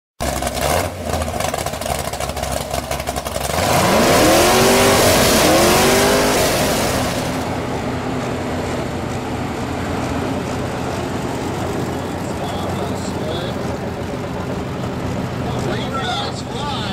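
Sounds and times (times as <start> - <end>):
engine revving: 0.2 - 8.1
truck engine idling: 0.2 - 16.9.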